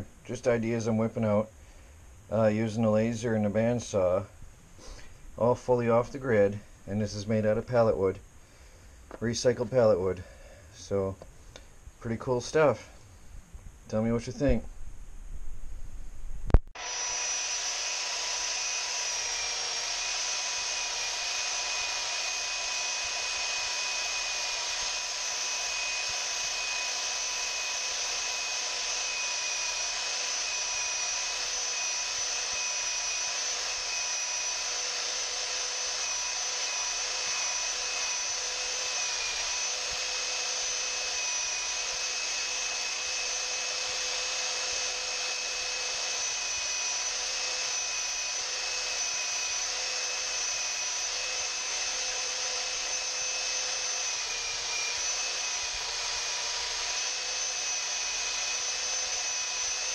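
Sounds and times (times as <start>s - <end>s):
belt sander motor whine: 16.5s - 59.9s.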